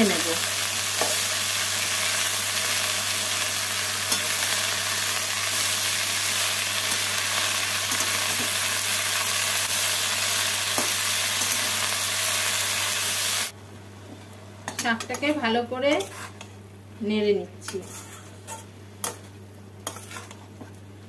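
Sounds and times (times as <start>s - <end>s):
leaves sizzling in hot oil: 0.0s - 13.6s.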